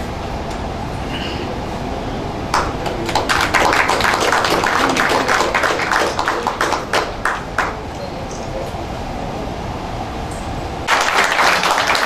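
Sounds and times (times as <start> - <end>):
steady low rumble: 0.0 - 10.9
small group applauding: 2.5 - 8.0, 10.9 - 12.0.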